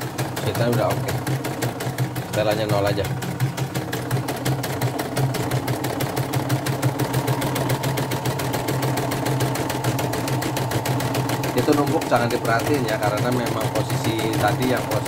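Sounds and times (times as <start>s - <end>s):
embroidery machine motor hum: 0.0s - 15.0s.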